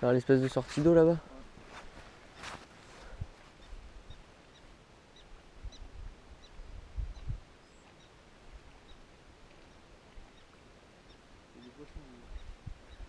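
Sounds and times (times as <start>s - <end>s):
wind rumbling on microphone: 5.2s - 7.8s, 11.5s - 13.0s.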